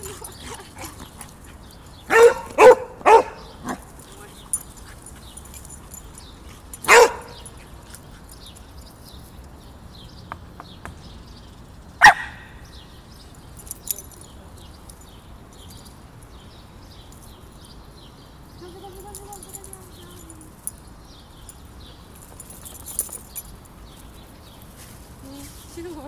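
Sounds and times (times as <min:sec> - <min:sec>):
small dogs barking: 0:00.0 - 0:05.2, 0:06.5 - 0:07.7, 0:12.0 - 0:12.5.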